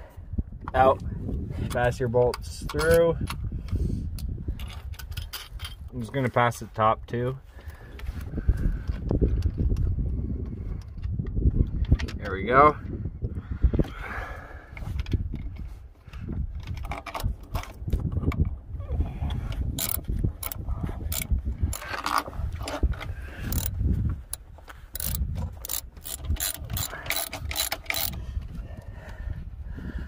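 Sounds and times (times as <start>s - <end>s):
ratchet wrench clicking: 19.8s - 22.2s, 23.4s - 23.7s, 24.3s - 28.2s.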